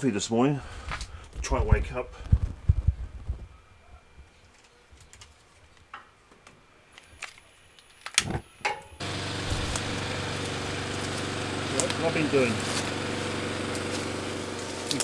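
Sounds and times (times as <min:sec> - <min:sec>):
gas burner rushing: 0:09.0 - 0:15.0.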